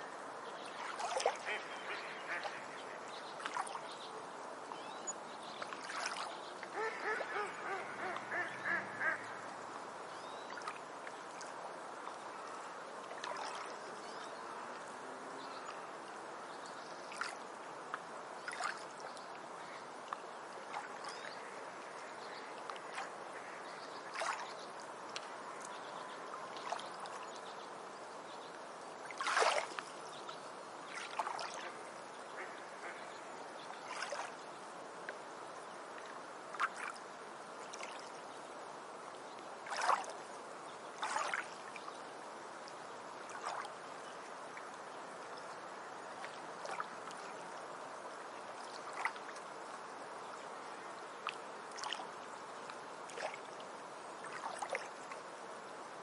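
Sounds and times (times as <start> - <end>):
water hissing along shore: 0.0 - 56.0
water bird calls: 0.6 - 3.9, 5.8 - 9.6, 20.7 - 24.6, 30.9 - 34.3.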